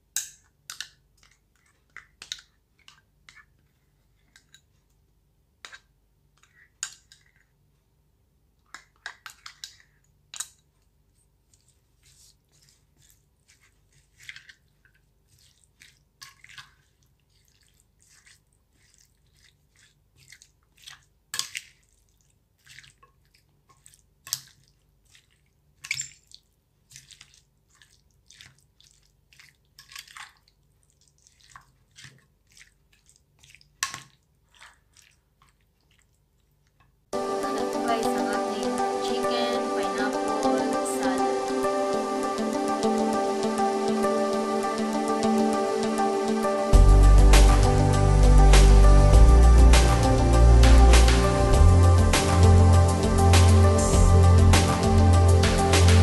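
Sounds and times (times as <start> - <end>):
wet squishes of mixing: 0.0 - 5.0, 5.6 - 7.6, 8.6 - 41.5.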